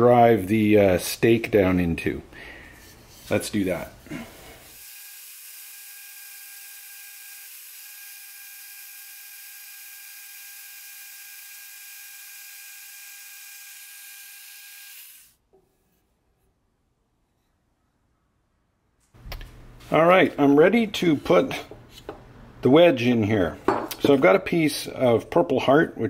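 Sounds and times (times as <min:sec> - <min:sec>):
bandsaw whining: 0:04.1 - 0:15.4.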